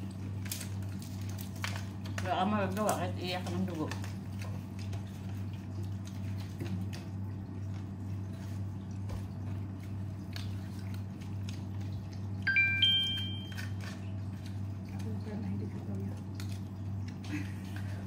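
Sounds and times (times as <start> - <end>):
soft chewing: 0.0 - 12.4, 13.4 - 18.0
three-note electronic chime: 12.5 - 13.6.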